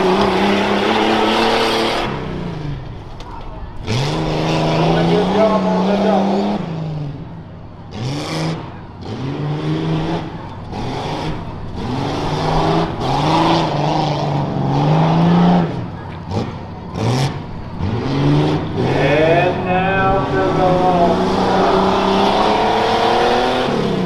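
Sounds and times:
engine revving hard: 0.0s - 2.7s, 3.8s - 7.0s, 7.9s - 24.0s.

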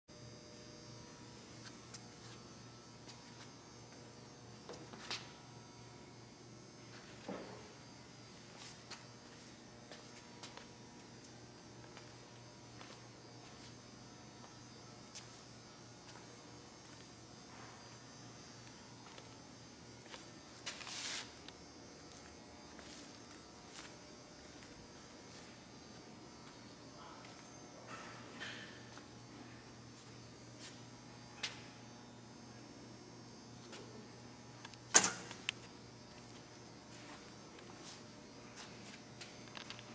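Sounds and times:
faint electrical hum: 0.1s - 39.9s
metal door shutting: 34.9s - 35.4s.

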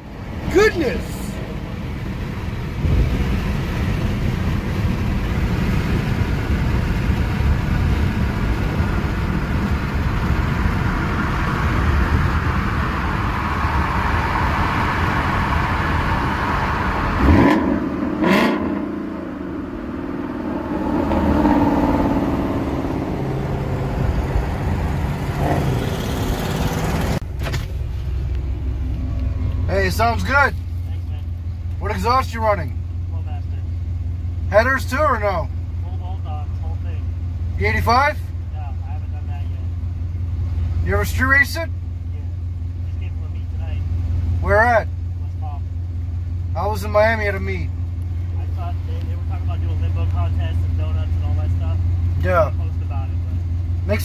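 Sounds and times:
car engine revving: 0.0s - 54.0s
sharp exhaust crack: 7.5s - 28.2s.

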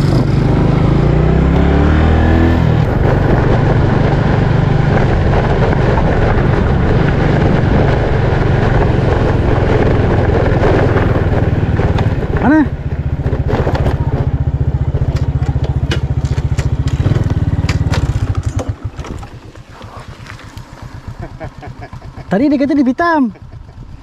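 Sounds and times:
dense rushing noise: 0.0s - 15.4s
motorcycle engine accelerating: 0.0s - 24.0s.

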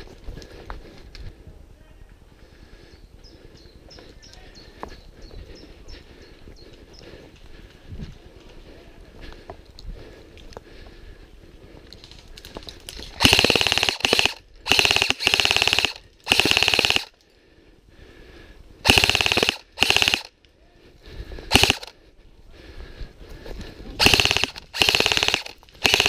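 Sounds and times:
airsoft gun full-auto bursts: 13.2s - 17.2s, 18.8s - 20.4s, 21.5s - 22.0s, 24.0s - 26.0s.

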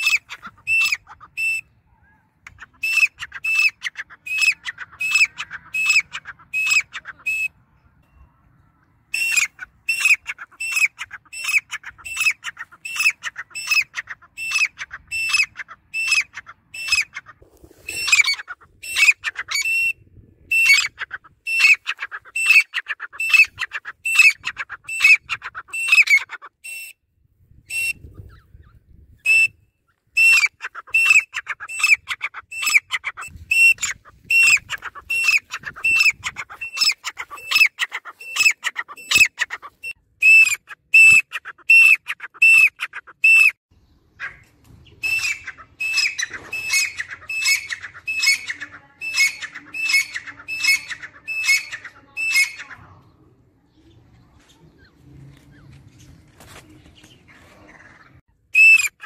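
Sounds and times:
bird calling repeated high calls: 0.0s - 28.6s, 29.2s - 43.6s, 44.2s - 52.9s, 57.5s - 59.0s.

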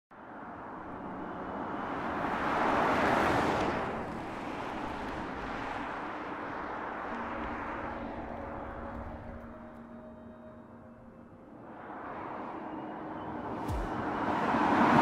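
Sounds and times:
car driving past: 11.5s - 15.0s.

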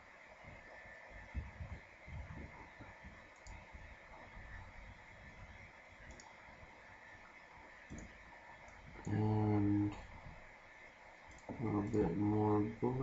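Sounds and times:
background hiss: 0.0s - 13.0s
computer mouse clicks: 2.8s - 3.7s, 6.0s - 6.4s, 7.8s - 9.2s, 11.3s - 11.6s.

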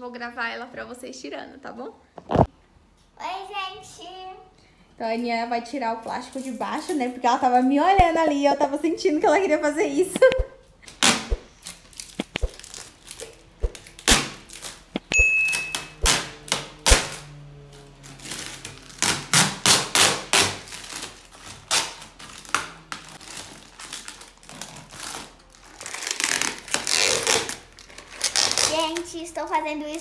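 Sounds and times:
plastic film crackling as peeled: 10.8s - 15.1s, 15.8s - 30.0s
short high beep: 15.1s - 16.0s.

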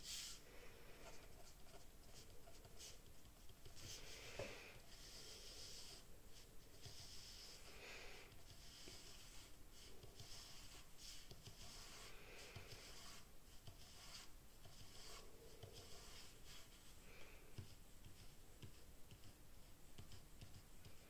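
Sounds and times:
pen scratching on paper: 1.0s - 7.6s, 8.3s - 16.9s.

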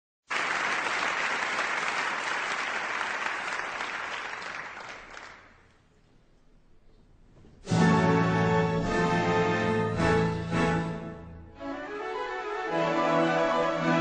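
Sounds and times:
audience applauding: 0.2s - 5.8s.

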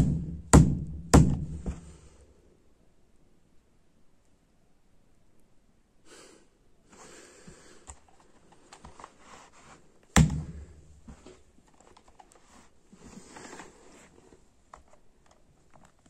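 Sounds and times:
handling and rustling of clock: 7.8s - 10.1s, 11.0s - 16.0s.

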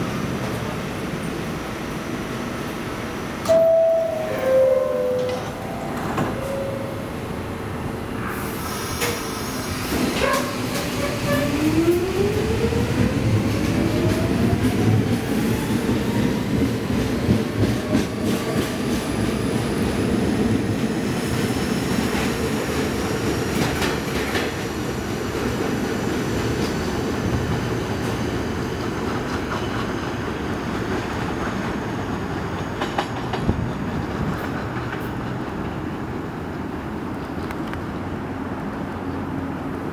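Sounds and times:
wheels clacking over rail joints: 28.9s - 36.1s.

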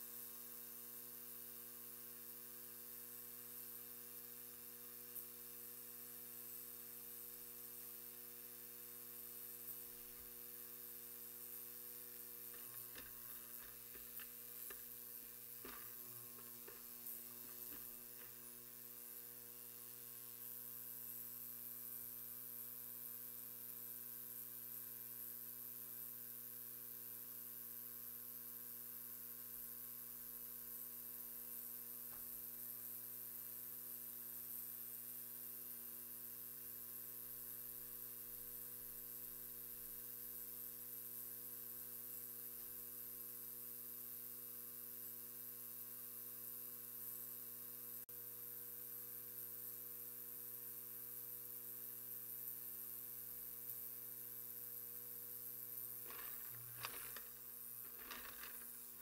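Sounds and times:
ultrasonic cleaner humming: 11.0s - 19.0s, 56.0s - 59.0s.

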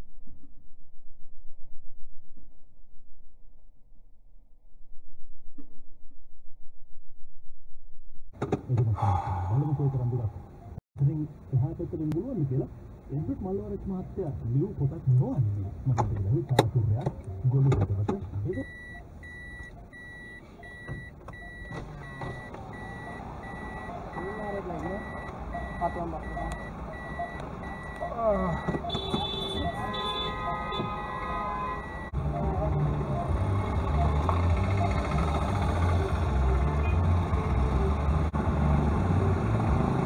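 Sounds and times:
low traffic noise: 8.4s - 40.0s
high-pitched warning beeps: 18.5s - 32.4s.

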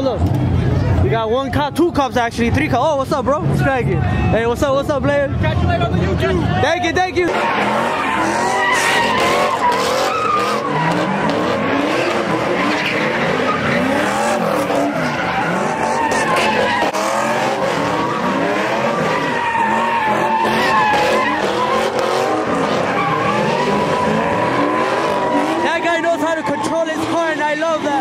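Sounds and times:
car engine revving: 0.0s - 28.0s
tyres squealing: 6.6s - 28.0s.

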